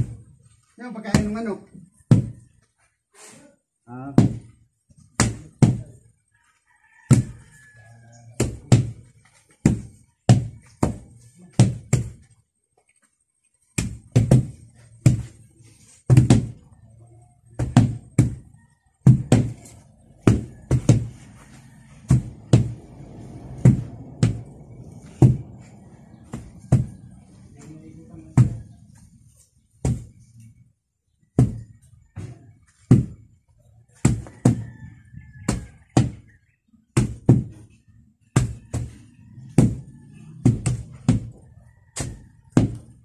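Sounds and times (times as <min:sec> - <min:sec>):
tampers thudding on earth: 0:17.5 - 0:30.4.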